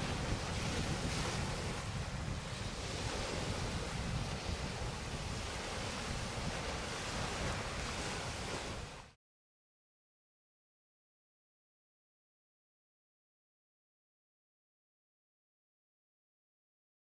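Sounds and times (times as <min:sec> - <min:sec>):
small waves on shingle: 0:00.0 - 0:09.1
wind buffeting microphone: 0:00.0 - 0:09.2.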